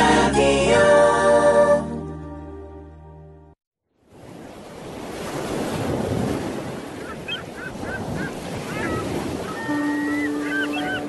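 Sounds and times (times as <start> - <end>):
ocean waves washing in: 4.0 - 11.0.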